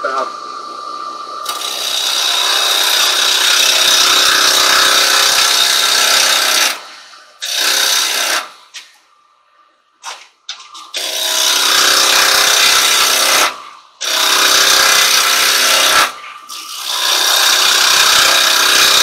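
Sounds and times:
lathe motor hum: 0:00.3 - 0:06.8, 0:11.0 - 0:19.0.

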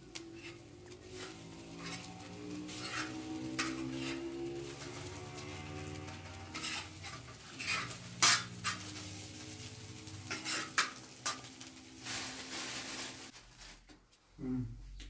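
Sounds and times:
spoon stirring greens in metal pan: 0:00.0 - 0:12.0
plastic bag rustling: 0:00.8 - 0:14.1.

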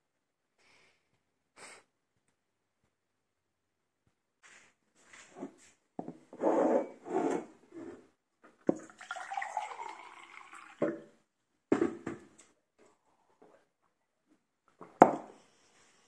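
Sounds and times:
water poured into a glass: 0:08.7 - 0:11.2.

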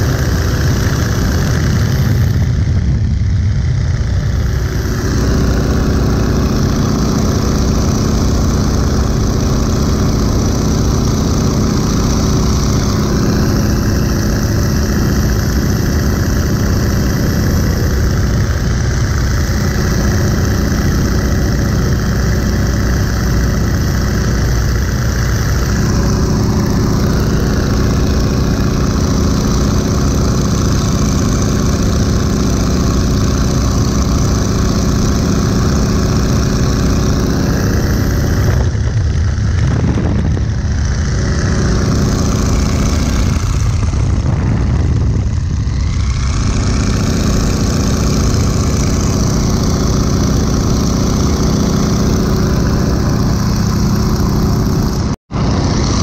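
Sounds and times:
propeller plane engine running: 0:00.0 - 0:56.0
wind rushing: 0:36.8 - 0:56.0.

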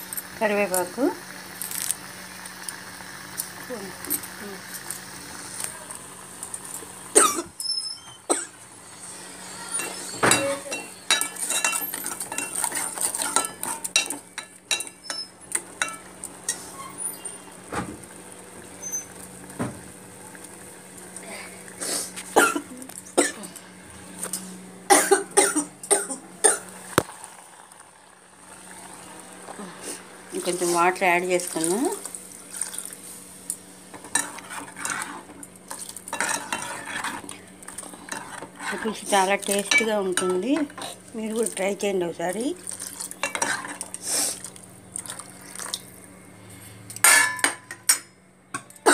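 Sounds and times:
steel plates and lid clinking: 0:09.7 - 0:16.0, 0:47.0 - 0:48.7
spoon scraping steel pot: 0:34.0 - 0:41.0.

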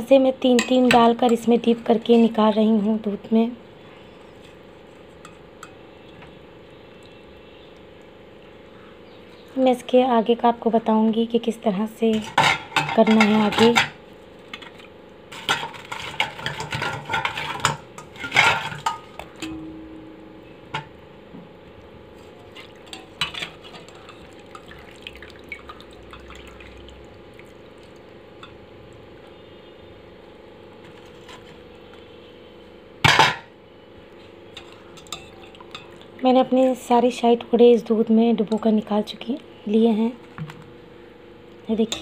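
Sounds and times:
steel skimmer clinking on pot: 0:00.5 - 0:02.4, 0:12.1 - 0:14.0, 0:15.3 - 0:20.1, 0:34.6 - 0:36.0.

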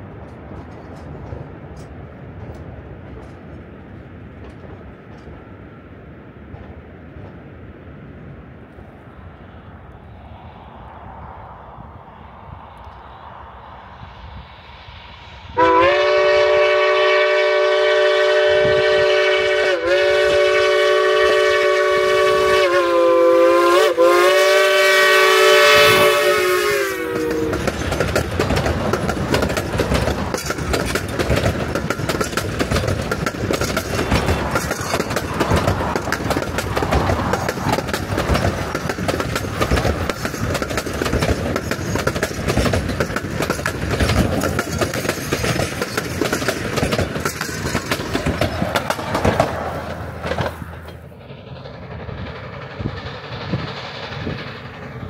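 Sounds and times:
passing train clattering: 0:00.0 - 0:55.0
steam locomotive whistle: 0:15.5 - 0:27.8.

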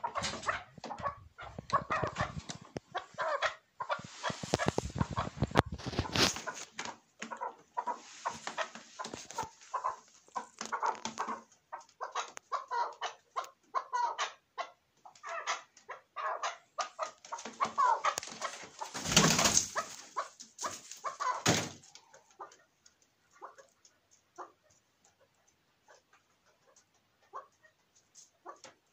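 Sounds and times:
partridge clucking: 0:00.0 - 0:13.6.

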